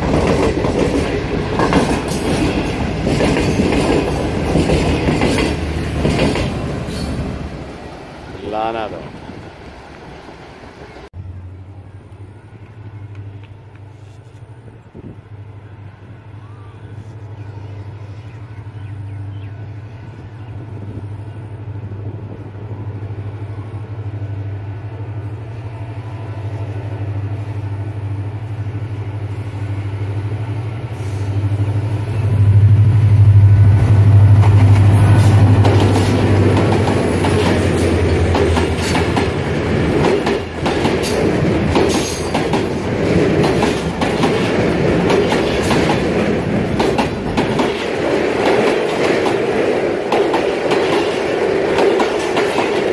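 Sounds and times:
train wheels clacking over rail joints: 0.0 - 7.2, 34.4 - 52.9
locomotive engine hum: 0.0 - 52.9.

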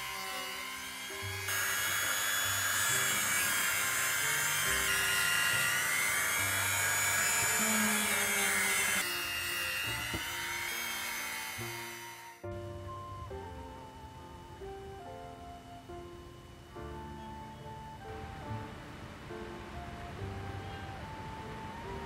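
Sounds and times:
disc grinding steel: 0.0 - 12.4
rotary tool whining: 0.0 - 12.5
background music: 0.0 - 22.0.

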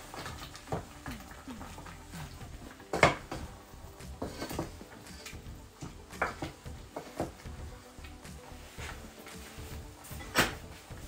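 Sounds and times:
broth boiling: 0.0 - 11.0
spoon scraping a pot: 0.2 - 8.1.

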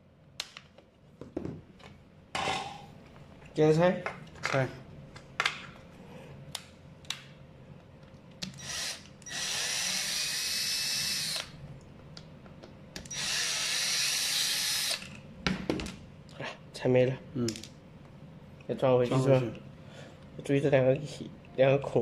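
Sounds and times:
cordless drill driving screw: 8.5 - 11.5, 13.1 - 15.0.

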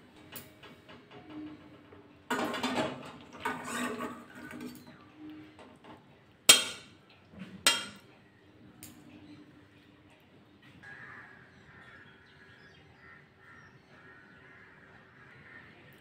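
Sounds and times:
spatula scraping food from a pan: 3.4 - 4.8
spatula clanking against metal pans: 6.5 - 7.0, 7.6 - 8.1.

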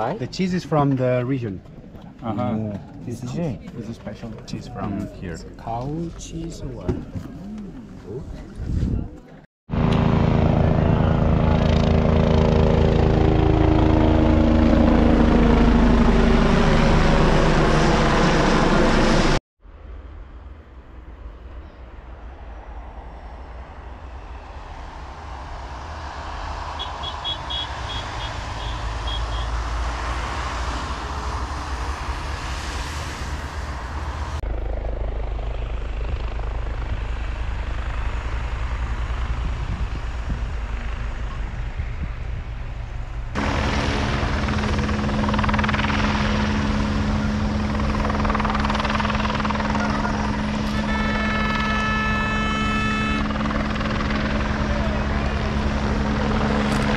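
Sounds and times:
helicopter rotor and engine: 9.7 - 19.4, 23.9 - 56.9.

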